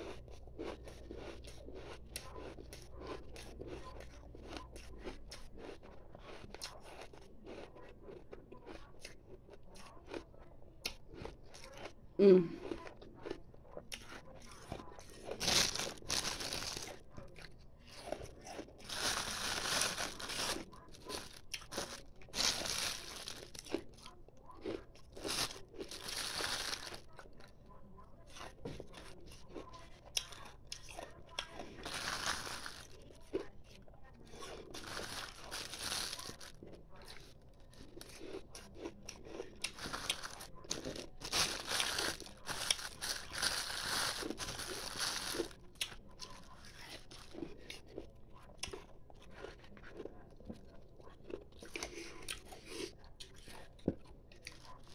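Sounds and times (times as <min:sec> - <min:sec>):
wet chewing: 0:00.0 - 0:12.0, 0:12.6 - 0:27.6, 0:28.2 - 0:54.9
ice crunching between teeth: 0:14.0 - 0:24.0, 0:24.6 - 0:27.1, 0:30.2 - 0:33.5, 0:34.4 - 0:47.6.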